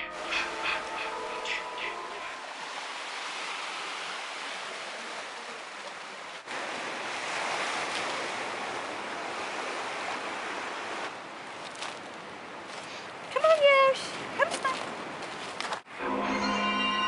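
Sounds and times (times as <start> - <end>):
surf breaking on shore: 0.1 - 12.0.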